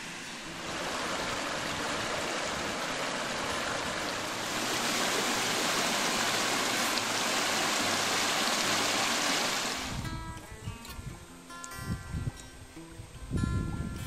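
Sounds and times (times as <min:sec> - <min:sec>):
water rushing over rocks: 0:00.0 - 0:10.1.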